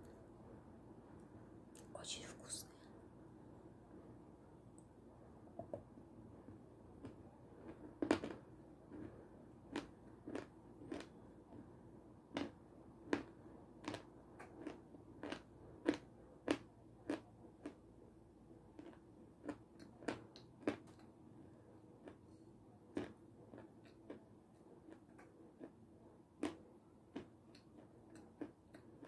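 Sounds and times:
crunchy candy chewing: 7.0 - 11.6, 12.3 - 17.9, 18.7 - 21.0, 21.9 - 25.8, 26.4 - 29.0.

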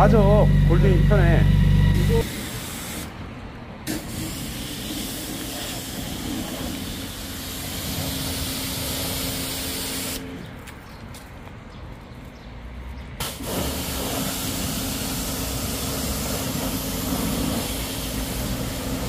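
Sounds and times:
low hum: 0.0 - 2.3
pressure washer spraying: 2.0 - 3.2, 3.9 - 10.2, 13.2 - 19.0.

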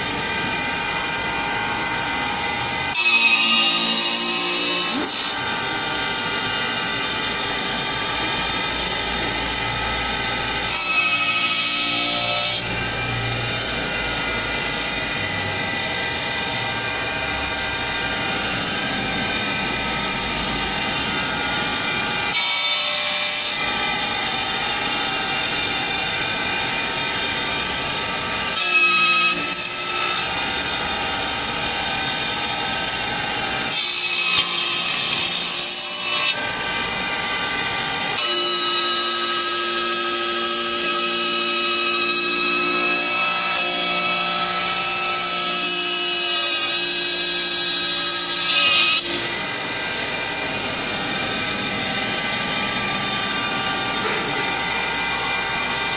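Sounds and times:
cutter cutting wood: 0.0 - 55.9
lathe machine whine: 0.0 - 55.9.

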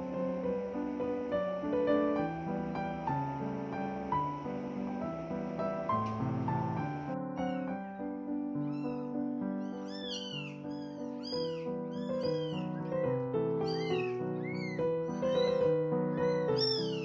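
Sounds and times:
kittens mewing: 8.6 - 17.0.

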